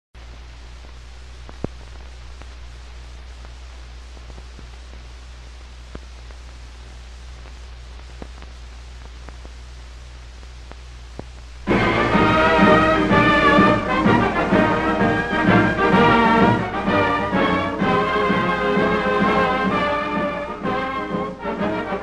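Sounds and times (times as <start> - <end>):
film soundtrack hiss: 0.2 - 22.0
low mains hum: 0.2 - 22.0
clicks and pops: 0.8 - 11.6.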